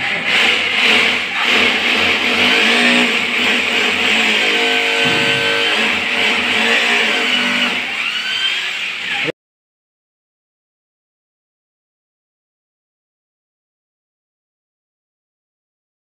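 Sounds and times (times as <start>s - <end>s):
hammer drill boring into tile: 0.0s - 9.3s.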